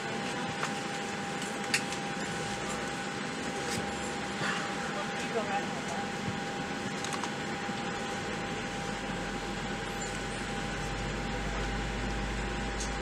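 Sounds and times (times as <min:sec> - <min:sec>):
steady whine: 0:00.0 - 0:13.0.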